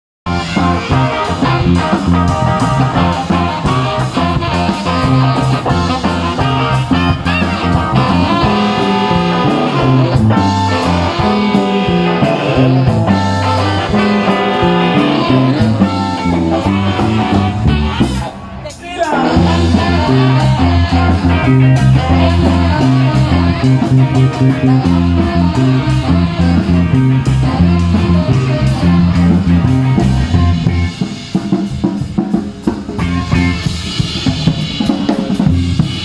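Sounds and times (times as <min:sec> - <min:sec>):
saxophone: 0:00.3 - 0:18.5, 0:19.2 - 0:31.0
bass guitar: 0:00.3 - 0:36.0
drum beat: 0:00.3 - 0:36.0
electric guitar: 0:00.3 - 0:36.0.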